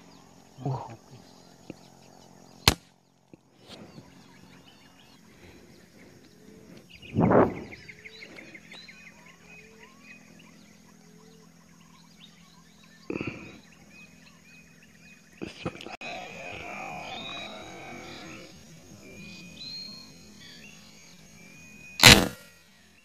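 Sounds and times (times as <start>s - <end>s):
birds chirping and calling: 0.0s - 23.0s
insect drone: 0.0s - 23.0s
air rifle shot: 2.7s - 2.9s, 22.0s - 22.5s
rush of noise: 15.6s - 19.2s.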